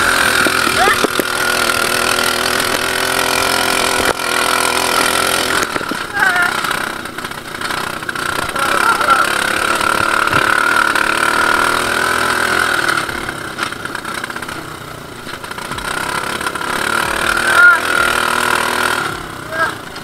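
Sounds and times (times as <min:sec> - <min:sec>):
buggy engine running: 0:00.0 - 0:20.0.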